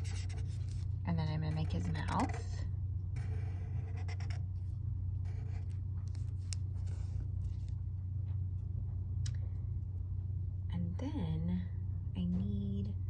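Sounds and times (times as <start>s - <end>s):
marker scratching on paper: 0.0s - 0.8s, 1.5s - 2.5s, 3.2s - 4.4s, 5.2s - 7.2s
steady low hum: 0.0s - 13.0s.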